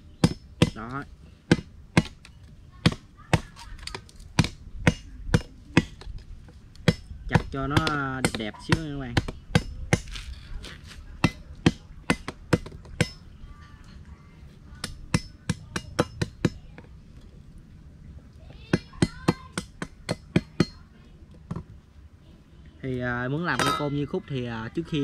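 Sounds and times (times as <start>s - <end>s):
machete chopping bamboo: 0.2s - 13.2s.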